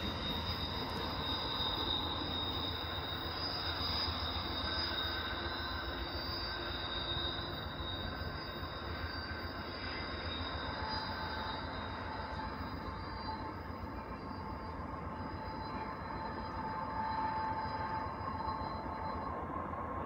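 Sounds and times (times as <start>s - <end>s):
steel wheels rumbling on rail: 0.0s - 20.0s
train wheel flanges squealing: 0.0s - 20.0s.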